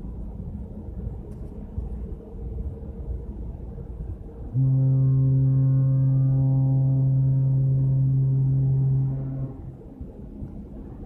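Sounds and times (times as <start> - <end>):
low steady rumble: 0.0 - 11.0
ship horn blast: 4.4 - 10.3.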